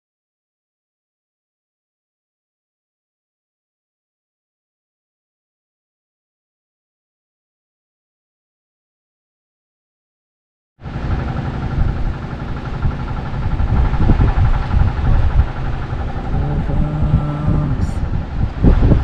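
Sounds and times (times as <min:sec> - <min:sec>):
faint steady hum: 0:10.8 - 0:19.0
wind buffeting microphone: 0:10.9 - 0:19.0.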